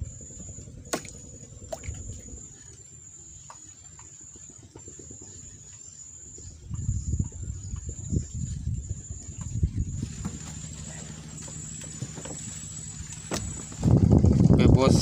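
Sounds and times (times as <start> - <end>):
low uneven rumbling: 0.0 - 15.0
high-pitched insect trill: 5.2 - 14.2.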